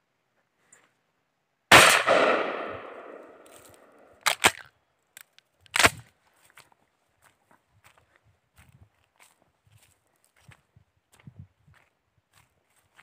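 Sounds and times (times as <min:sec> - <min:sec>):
shotgun shot with echo: 0:01.7 - 0:04.1
sharp clicks: 0:02.1 - 0:06.0.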